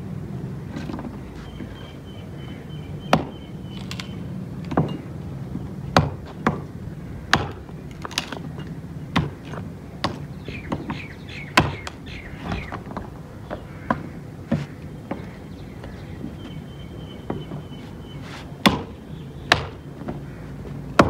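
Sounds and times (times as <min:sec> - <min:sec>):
hatchet chopping wood: 0:03.1 - 0:04.0, 0:06.0 - 0:06.7, 0:07.3 - 0:08.5, 0:09.1 - 0:12.0, 0:18.6 - 0:19.8.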